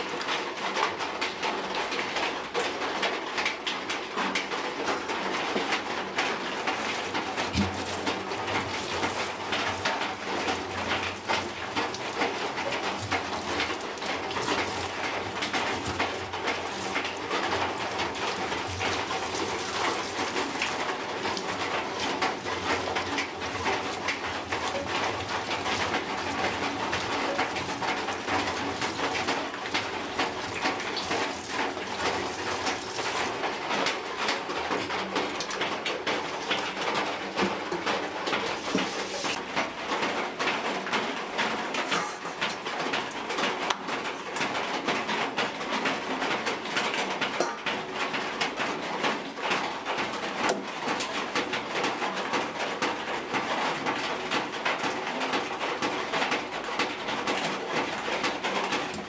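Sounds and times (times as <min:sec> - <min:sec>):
tap water running and splashing: 0:00.1 - 0:59.0
eels rubbed by hand: 0:38.5 - 0:39.4.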